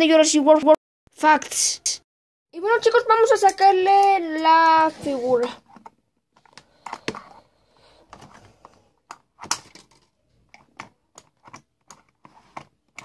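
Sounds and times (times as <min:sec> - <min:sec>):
hands handling toy box clicks: 0:08.1 - 0:13.0.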